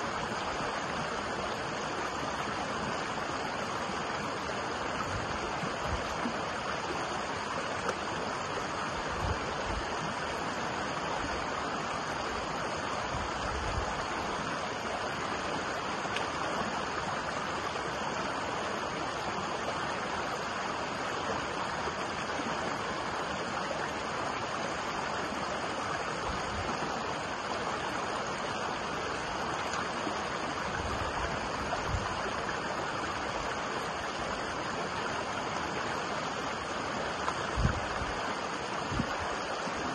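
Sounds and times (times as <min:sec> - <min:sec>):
stream rushing over rocks: 0:00.0 - 0:39.9
wind buffeting microphone: 0:37.5 - 0:38.2.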